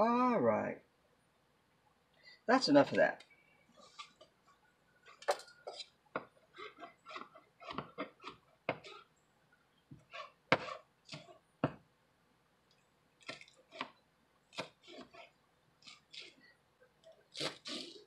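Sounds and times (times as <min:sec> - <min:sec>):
knife chopping on plastic board: 0:06.2 - 0:09.0, 0:09.9 - 0:11.8, 0:13.2 - 0:15.2.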